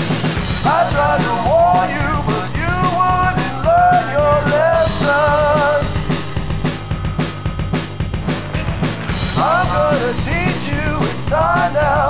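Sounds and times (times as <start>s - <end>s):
drum kit: 0.0s - 12.0s
person singing: 0.6s - 6.3s, 9.3s - 12.0s.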